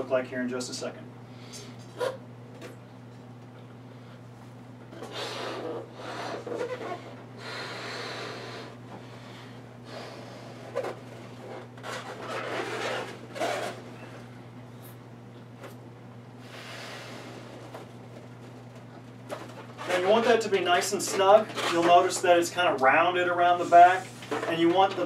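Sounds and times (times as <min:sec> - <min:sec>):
man blowing up balloon: 0:04.9 - 0:08.8.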